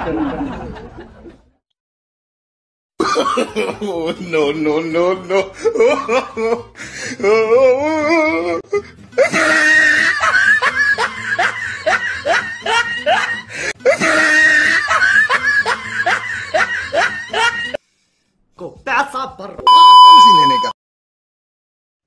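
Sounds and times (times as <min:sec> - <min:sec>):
music: 0:03.8 - 0:17.8.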